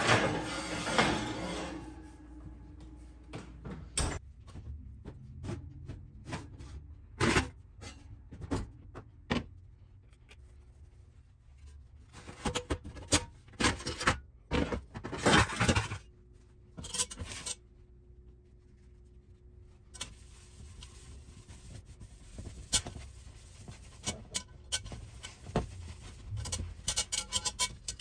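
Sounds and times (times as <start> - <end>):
cast iron pot scraping metal: 0.0 - 2.4, 16.8 - 17.6, 23.8 - 28.0.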